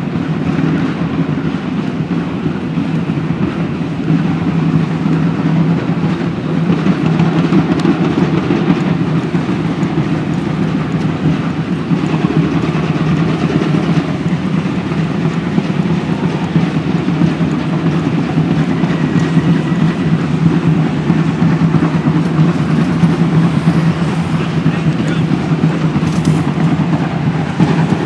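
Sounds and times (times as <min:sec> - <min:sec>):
low rumble of road traffic: 0:00.0 - 0:28.0
car passing: 0:06.3 - 0:28.0.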